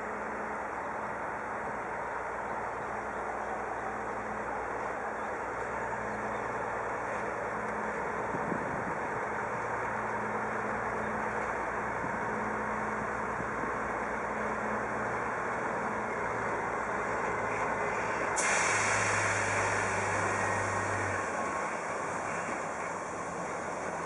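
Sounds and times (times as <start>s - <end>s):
diesel locomotive running: 0.0s - 24.0s
loud hiss: 18.4s - 22.8s.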